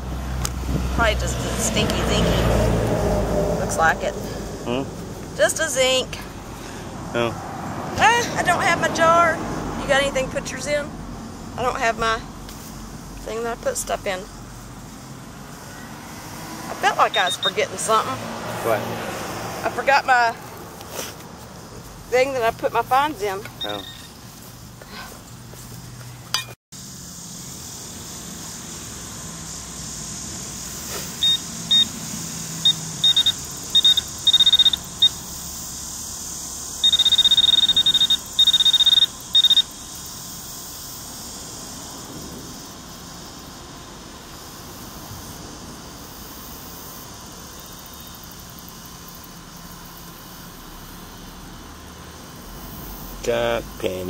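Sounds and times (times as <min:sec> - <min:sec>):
metal detector beeping: 0:17.0 - 0:17.6, 0:23.4 - 0:24.2, 0:31.2 - 0:32.0, 0:32.6 - 0:35.2, 0:36.8 - 0:39.8.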